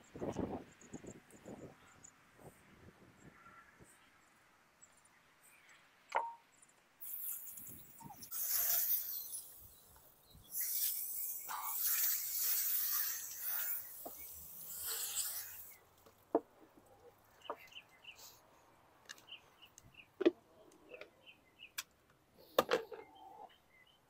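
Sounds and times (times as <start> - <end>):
small birds chirping: 0.1 - 16.2, 16.8 - 24.0
hose nozzle spraying water: 7.0 - 9.8, 10.5 - 15.8.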